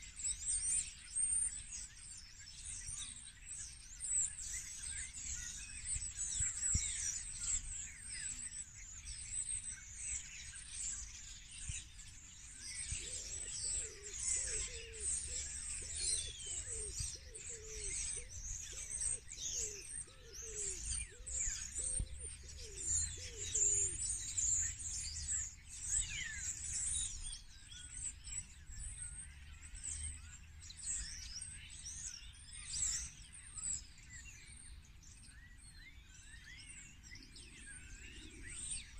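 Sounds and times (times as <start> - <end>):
songbirds chirping and trilling: 0.0 - 38.9
lower bird call: 12.5 - 28.0.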